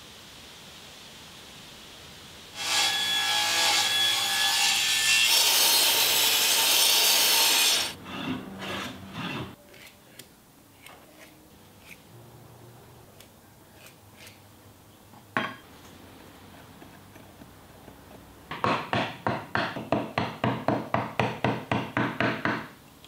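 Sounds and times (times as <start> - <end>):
saw cutting through wood: 2.6 - 9.6.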